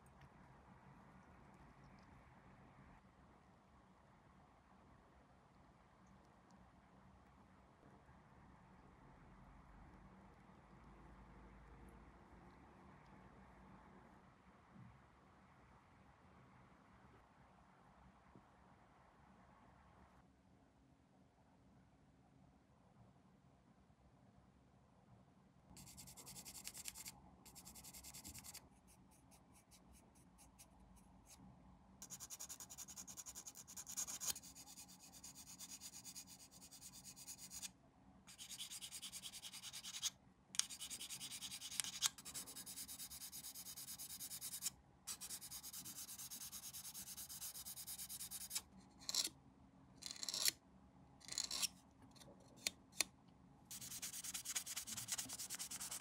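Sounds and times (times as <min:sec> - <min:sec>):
sanding plastic part: 0:38.3 - 0:49.3, 0:53.7 - 0:56.0.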